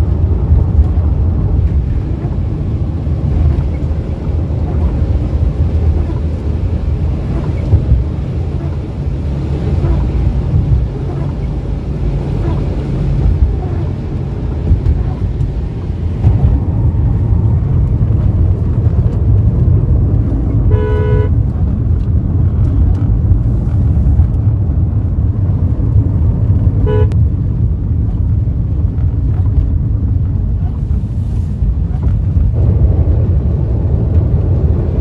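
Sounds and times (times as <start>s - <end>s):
car driving in heavy rain: 0.0s - 35.0s
car horn toots: 20.6s - 21.4s, 26.8s - 27.2s.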